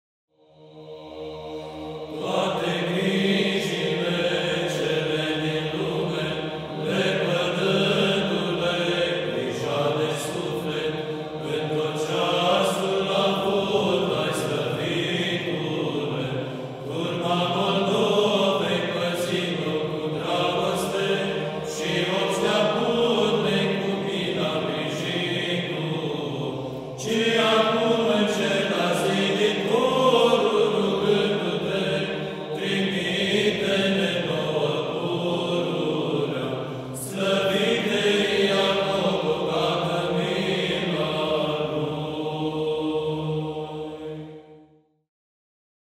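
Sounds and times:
low held vocal drone: 0.4s - 44.4s
choir chanting: 0.4s - 44.8s.

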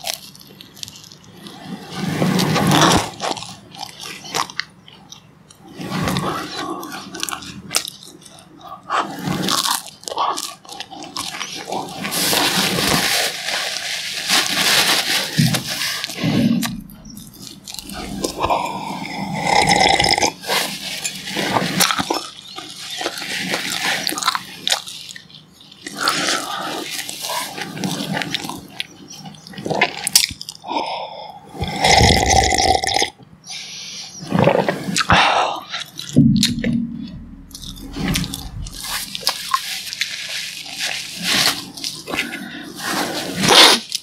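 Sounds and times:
sipping and swallowing tea: 16.1s - 22.3s, 31.5s - 33.2s.

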